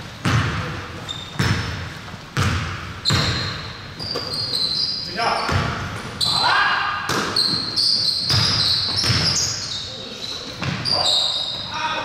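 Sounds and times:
basketball bouncing on hardwood: 0:00.2 - 0:00.7, 0:01.3 - 0:01.8, 0:02.4 - 0:04.3, 0:05.5 - 0:06.0, 0:07.1 - 0:09.4
sneaker squeaks: 0:00.2 - 0:12.0.

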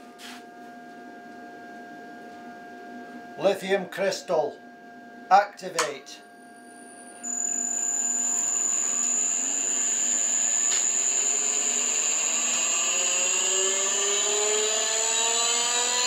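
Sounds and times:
electric motor and hydraulic pump: 0:07.2 - 0:16.0.

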